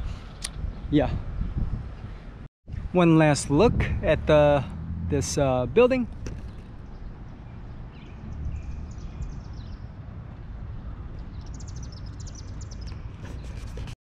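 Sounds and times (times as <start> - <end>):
small birds chirping: 6.1 - 10.0, 10.8 - 14.0.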